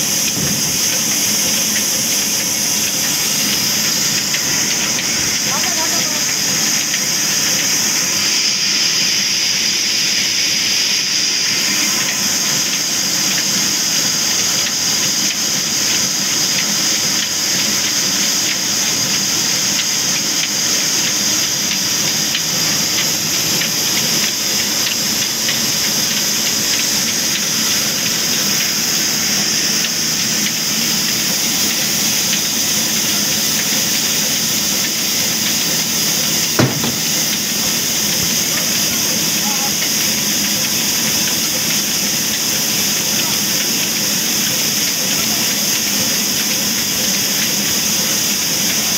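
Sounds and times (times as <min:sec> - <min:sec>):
band saw machine whirring: 0:00.0 - 0:17.8, 0:18.5 - 0:45.6
sharp knock: 0:36.6 - 0:37.3.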